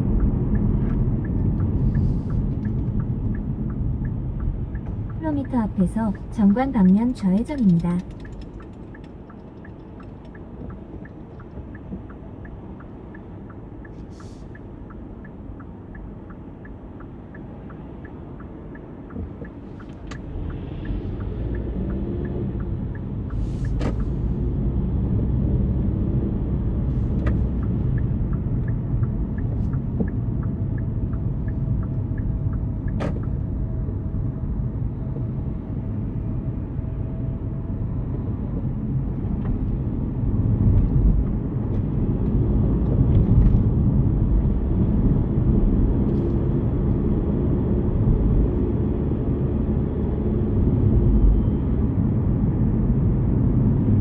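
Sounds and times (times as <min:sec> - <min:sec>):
car road and drivetrain rumble: 0:00.0 - 0:54.0
faint light ticking: 0:00.1 - 0:24.2, 0:27.2 - 0:33.4.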